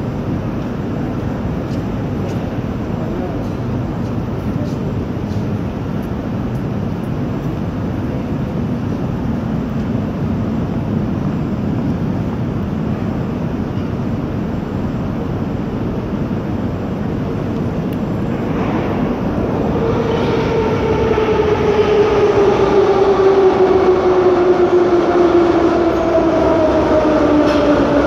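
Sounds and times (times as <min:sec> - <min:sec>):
metro train rumbling: 0:00.0 - 0:28.0.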